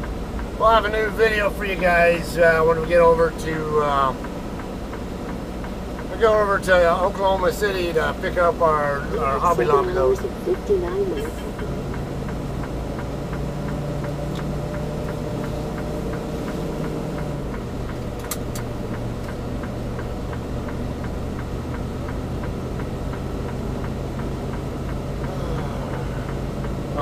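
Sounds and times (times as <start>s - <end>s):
diesel truck engine running: 0.0s - 27.0s
light even ticking: 0.0s - 27.0s
seatbelt latch clicks: 17.9s - 18.8s.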